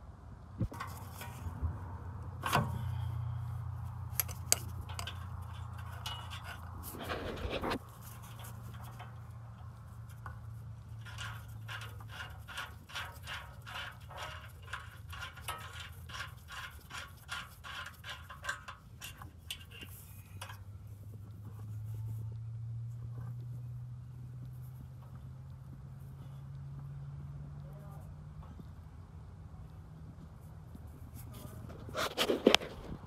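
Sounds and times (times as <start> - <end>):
low steady hum: 0.0 - 33.0
wrench clicking and scraping: 2.4 - 20.7.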